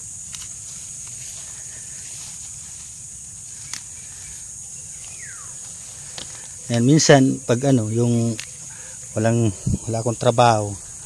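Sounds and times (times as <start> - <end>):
insects droning: 0.0 - 11.0
sharp click: 0.3 - 0.6, 3.6 - 3.9, 8.2 - 8.6.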